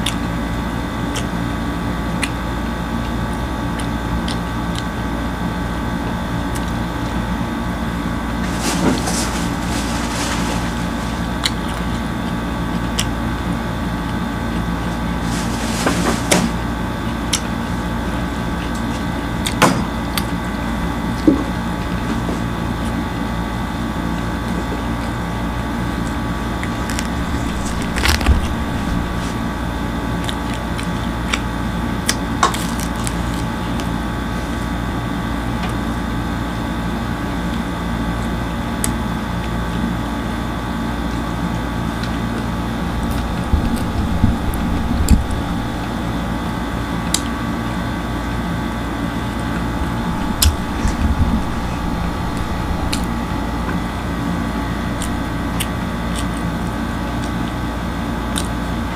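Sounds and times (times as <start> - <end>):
bread tearing and eating clicks: 0.0 - 0.3, 1.0 - 5.1, 11.2 - 15.0, 26.0 - 34.0, 41.9 - 46.2, 54.9 - 58.8
machine hum: 0.0 - 19.2, 26.0 - 30.6, 42.0 - 58.9.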